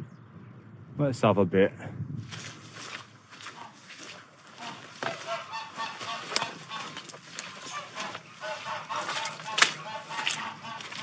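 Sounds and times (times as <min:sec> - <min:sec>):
geese honking: 0:03.3 - 0:11.0.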